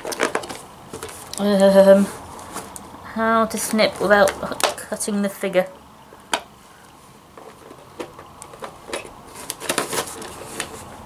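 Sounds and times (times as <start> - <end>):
plastic packaging clicks and crinkles: 0.0 - 1.5, 6.2 - 11.0.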